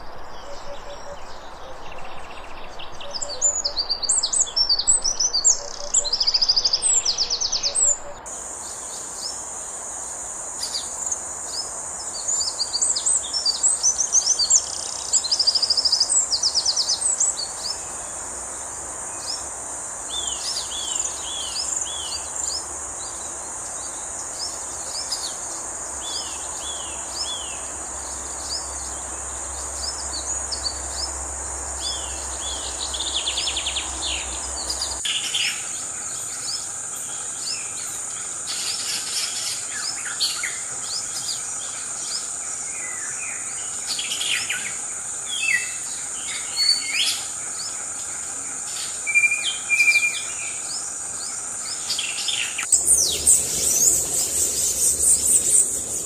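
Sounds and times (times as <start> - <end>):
high insect buzz: 1.4 - 56.0.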